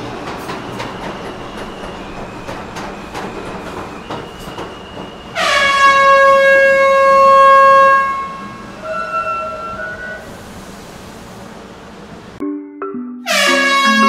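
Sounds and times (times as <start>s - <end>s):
crowded station bustle: 0.0s - 12.5s, 13.2s - 14.0s
train horn blast: 5.4s - 10.2s, 13.2s - 14.0s.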